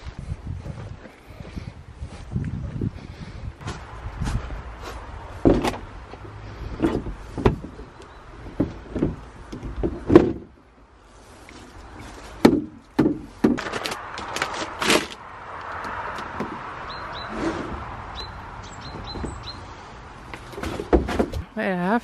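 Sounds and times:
irregular knocks and clunks: 5.4 - 10.6, 12.4 - 14.3, 18.8 - 19.6, 20.3 - 21.5.

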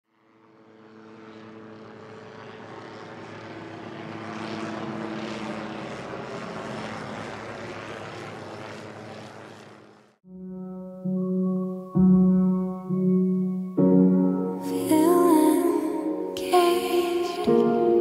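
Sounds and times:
drone propellers whirring: 0.1 - 10.2.

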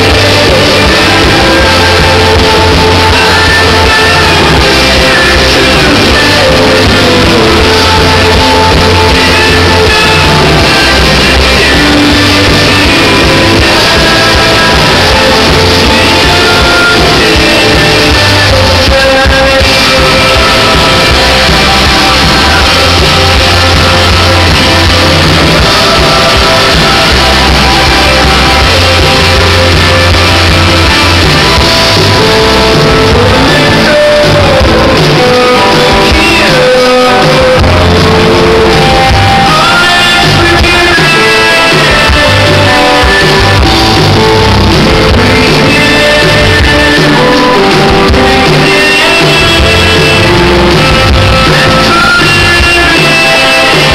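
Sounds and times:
male lead vocal: 0.0 - 53.9
rock band playing live: 0.0 - 53.9.

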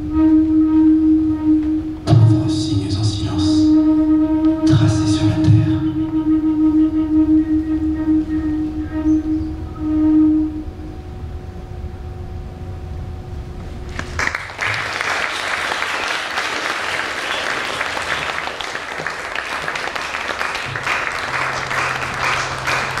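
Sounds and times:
held music note: 0.0 - 14.0, 20.5 - 23.0
low drone: 0.0 - 15.0, 20.6 - 23.0
audience applause: 13.9 - 23.0.

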